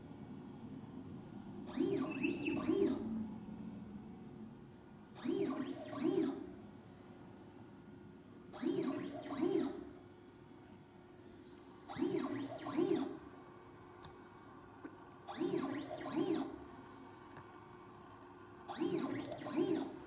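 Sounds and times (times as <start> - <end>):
motor whine: 1.6 - 3.2.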